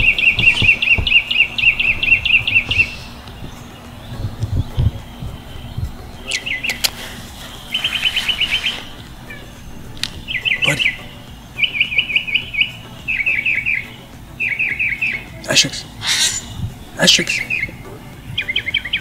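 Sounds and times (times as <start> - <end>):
songbird chirping: 0.0 - 19.0
sharp clicks: 6.3 - 7.1.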